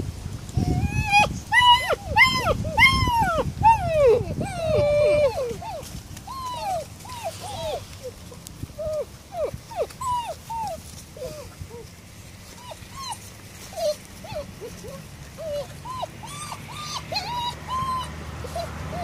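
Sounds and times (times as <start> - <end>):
puppies whining: 0.6 - 19.0.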